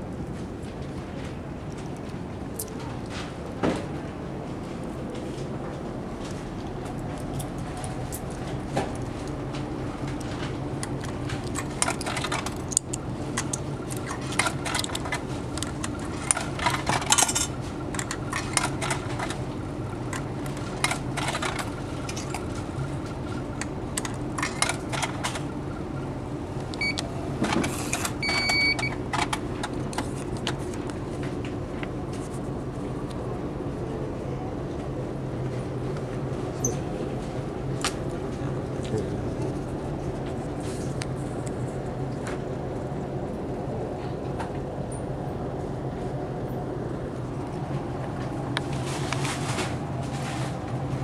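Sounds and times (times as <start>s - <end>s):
ship engine drone: 0.0s - 51.0s
ticket machine whirr: 7.6s - 26.1s, 26.7s - 30.0s
coins clinking into machine: 16.1s - 19.3s
electronic beeps: 28.2s - 29.0s.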